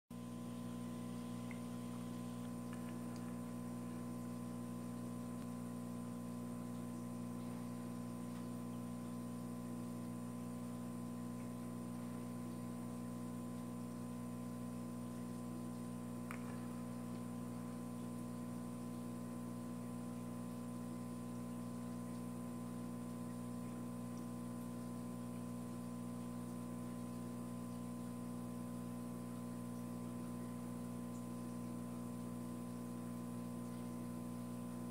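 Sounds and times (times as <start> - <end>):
electrical hum: 0.1 - 34.9
faint click: 16.2 - 16.7.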